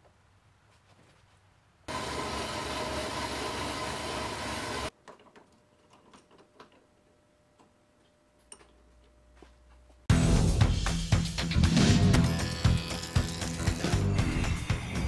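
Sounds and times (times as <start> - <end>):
band saw cutting metal: 1.9 - 4.9, 11.7 - 15.0
light clicks and knocks of workpiece: 5.0 - 6.9, 7.6 - 9.1.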